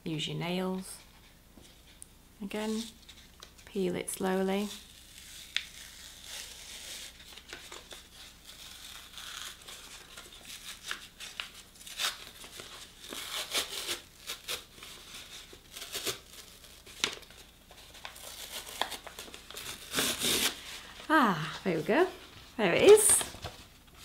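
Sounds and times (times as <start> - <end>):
plastic film peeling off board: 4.8 - 14.8, 15.6 - 20.6.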